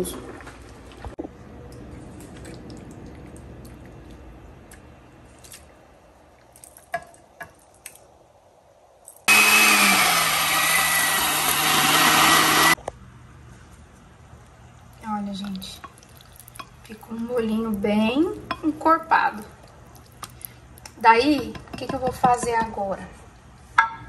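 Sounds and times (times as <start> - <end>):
blender running: 9.3 - 12.8.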